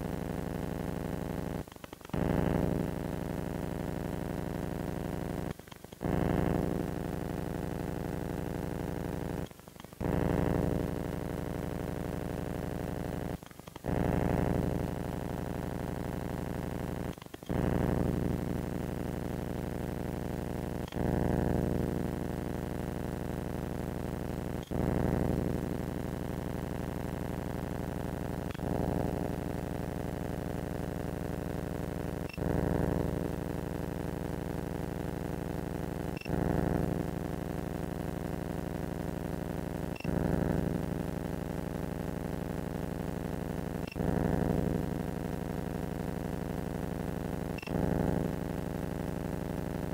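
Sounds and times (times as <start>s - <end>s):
steady electronic hum: 0.0s - 49.9s
click: 1.6s - 2.4s, 5.4s - 6.3s, 9.4s - 10.2s, 13.3s - 14.0s, 17.0s - 17.6s, 20.8s - 21.1s, 32.2s - 32.5s, 36.1s - 36.4s, 39.9s - 40.2s, 47.5s - 47.8s.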